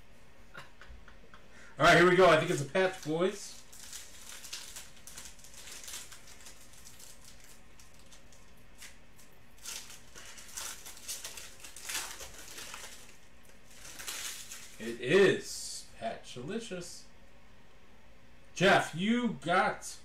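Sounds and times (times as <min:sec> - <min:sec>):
foil wrapper crinkling: 0:01.9 - 0:15.0.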